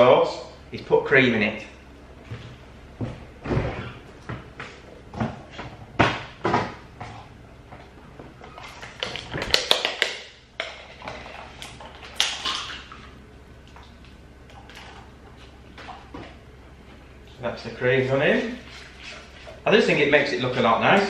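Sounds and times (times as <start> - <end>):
kitchen knocks and thuds: 5.1 - 6.8.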